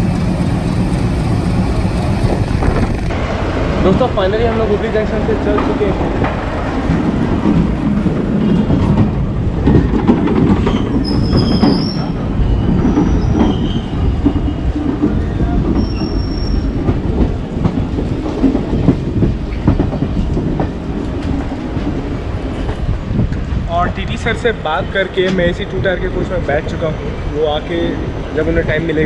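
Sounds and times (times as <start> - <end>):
train wheels rumbling on track: 0.0 - 29.0
high wheel squeals: 10.7 - 14.9, 15.7 - 16.8.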